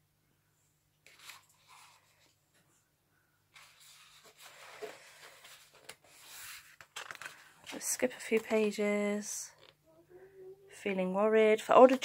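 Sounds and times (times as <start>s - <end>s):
paper pages rustling: 1.0s - 2.6s, 3.5s - 9.8s.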